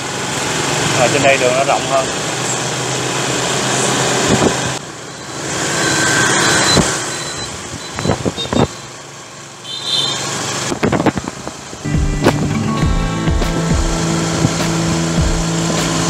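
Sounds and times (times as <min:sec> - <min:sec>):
motorbike road noise: 0:00.0 - 0:16.0
wind rushing over microphone: 0:04.2 - 0:04.8, 0:06.6 - 0:08.7, 0:10.7 - 0:12.6, 0:13.9 - 0:14.7.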